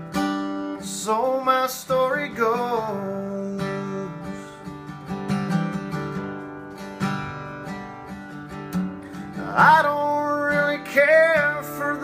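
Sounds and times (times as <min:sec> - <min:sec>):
acoustic guitar strumming: 0:00.0 - 0:12.0
person singing: 0:00.7 - 0:04.8, 0:09.3 - 0:12.0.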